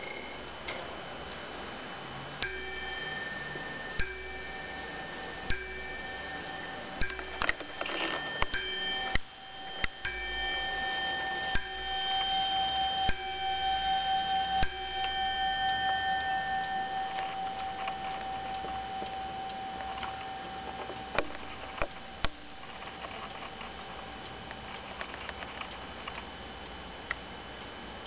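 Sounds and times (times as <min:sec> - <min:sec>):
clock bell striking: 0:02.4 - 0:22.8.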